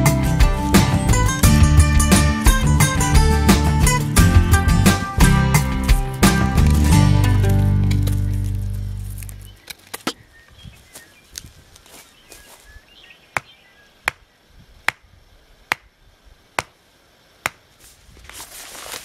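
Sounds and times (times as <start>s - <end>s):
hatchet chopping wood: 13.4s - 14.2s, 15.7s - 15.9s, 17.4s - 17.6s.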